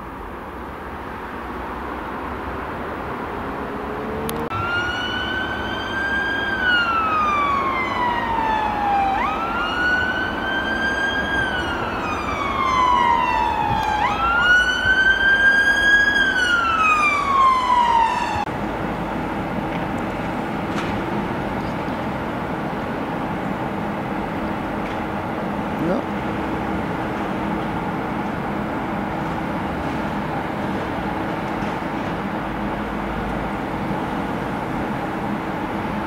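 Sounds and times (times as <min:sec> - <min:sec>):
emergency siren wailing: 0:03.2 - 0:18.5.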